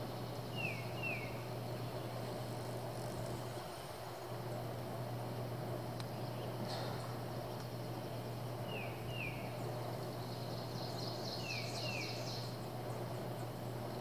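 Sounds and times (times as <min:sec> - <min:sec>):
steady low hum: 0:00.0 - 0:14.0
bird twittering: 0:00.5 - 0:02.4, 0:07.9 - 0:14.0
bird whistling: 0:00.6 - 0:01.4, 0:10.7 - 0:12.5.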